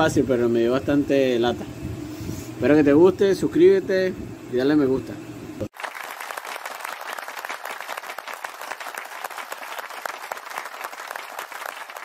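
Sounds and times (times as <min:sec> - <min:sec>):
applause: 0:05.7 - 0:12.0.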